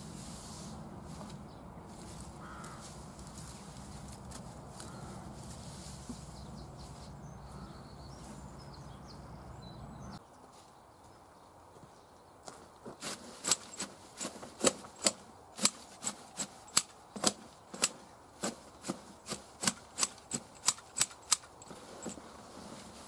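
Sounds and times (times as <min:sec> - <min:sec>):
garden snips clicking: 0:13.4 - 0:21.7.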